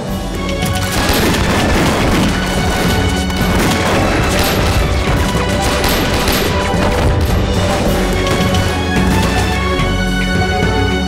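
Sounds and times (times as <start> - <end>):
dramatic background music: 0.0 - 11.0
heavy impacts: 0.5 - 10.1
pistol gunfire volley: 0.8 - 9.6.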